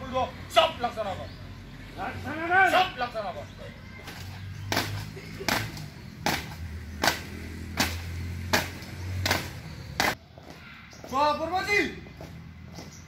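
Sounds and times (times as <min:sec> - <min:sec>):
marching footsteps on pavement: 0:03.9 - 0:13.0.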